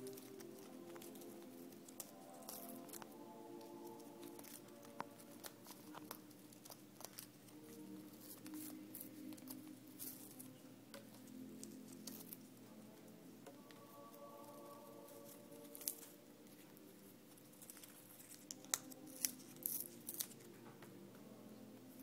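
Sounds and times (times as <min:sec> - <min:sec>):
soft background music: 0:00.0 - 0:22.0.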